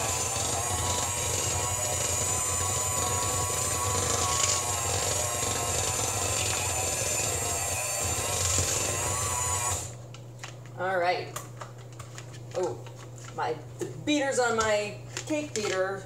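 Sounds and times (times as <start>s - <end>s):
electric mixer motor whine: 0.0s - 10.0s.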